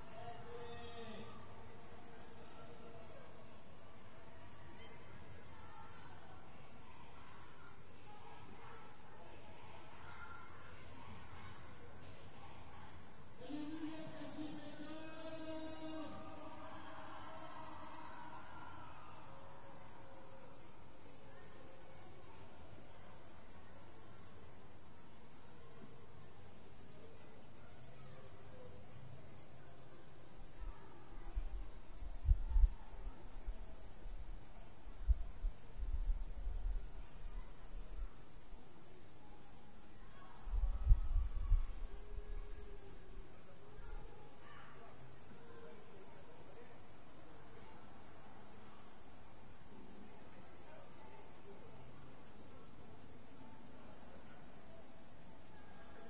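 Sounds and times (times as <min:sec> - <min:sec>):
crickets chirping: 0:00.0 - 0:56.0.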